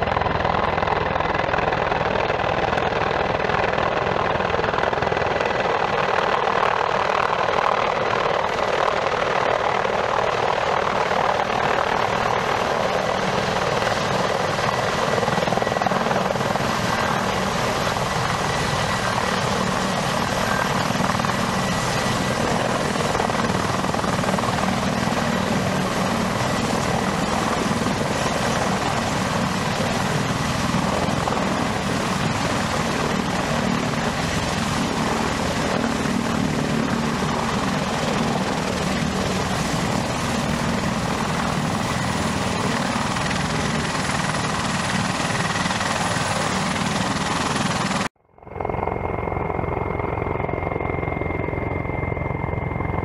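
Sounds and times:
helicopter rotor noise: 0.0s - 53.0s
high turbine whine: 11.2s - 53.0s.

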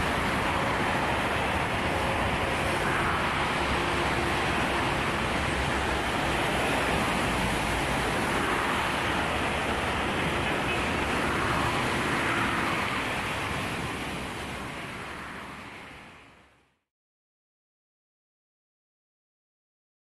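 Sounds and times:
waves washing onto pebble beach: 0.0s - 15.4s.

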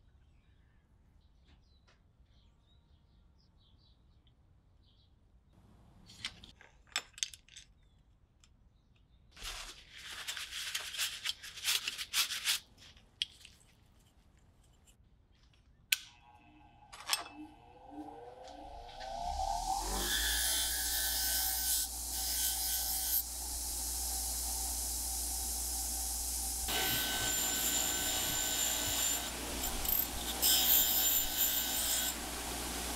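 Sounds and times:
paper towel rustling: 9.4s - 12.8s
bench grinder motor whine: 17.3s - 32.9s.

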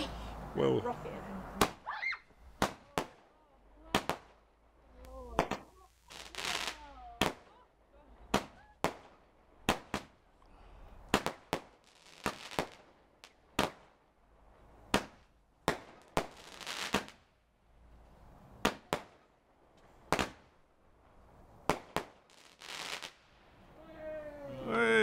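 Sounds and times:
firework bangs: 1.4s - 1.9s, 2.5s - 4.4s, 5.2s - 7.6s, 8.2s - 10.2s, 11.0s - 14.0s, 14.8s - 17.3s, 18.6s - 19.3s, 20.0s - 20.6s, 21.6s - 23.4s
firework hissing: 5.2s - 7.4s, 21.6s - 23.3s.

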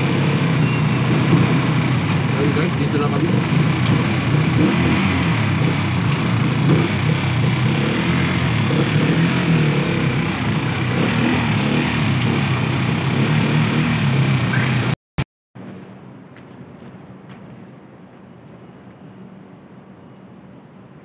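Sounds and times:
small motorcycle engine running: 0.0s - 15.0s.

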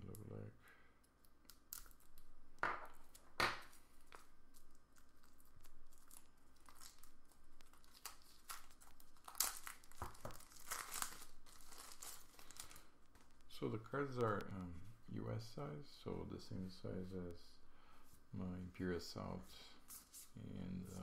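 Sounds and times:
plastic wrap crinkling and tearing: 1.2s - 14.6s.

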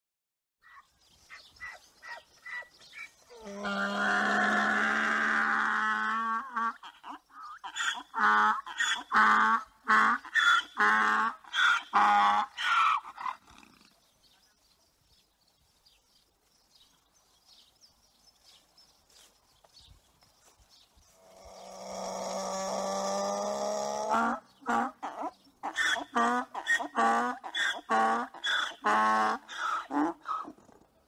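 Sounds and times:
donkey braying: 1.6s - 13.8s, 21.4s - 30.7s.

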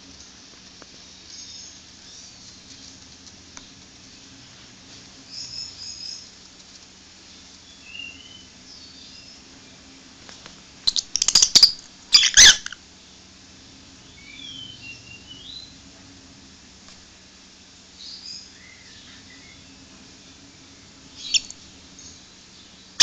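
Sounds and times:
crackling scratchy noise: 0.0s - 5.3s
bird chirping softly: 1.1s - 4.5s, 5.2s - 9.8s, 10.8s - 13.3s, 14.0s - 15.8s, 18.0s - 23.0s.

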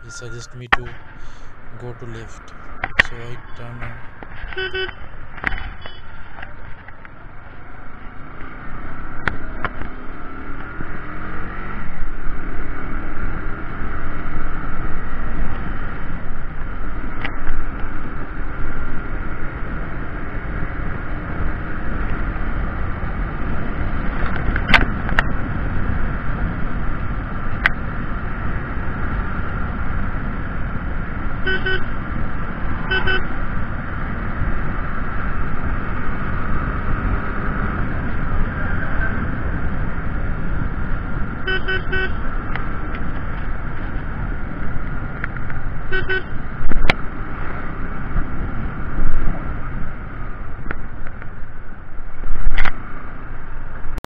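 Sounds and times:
motorcycle horn toots: 4.6s - 5.0s, 31.5s - 31.9s, 32.9s - 33.3s, 41.4s - 42.2s, 45.9s - 46.4s.

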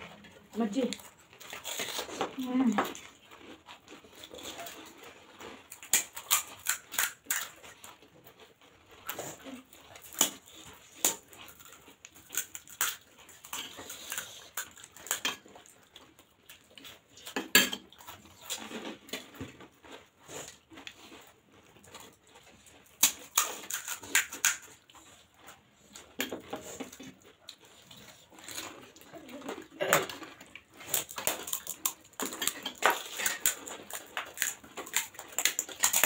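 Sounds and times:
wet chewing: 0.0s - 36.0s
crisp shells cracking and crunching: 1.0s - 8.1s, 9.0s - 15.8s, 22.8s - 24.9s, 28.0s - 36.0s.

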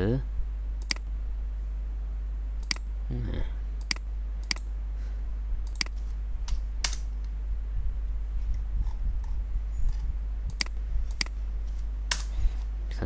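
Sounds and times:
low hum: 0.0s - 13.0s
computer mouse clicking: 0.8s - 1.0s, 2.6s - 2.8s, 3.8s - 4.6s, 5.6s - 7.0s, 9.9s - 11.4s.

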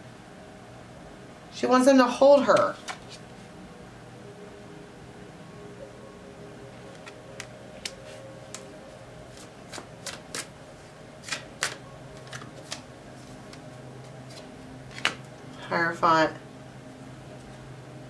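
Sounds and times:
faint low hum: 0.0s - 18.0s
cards clicking and snapping: 9.4s - 10.5s, 11.2s - 12.8s, 14.3s - 15.2s.

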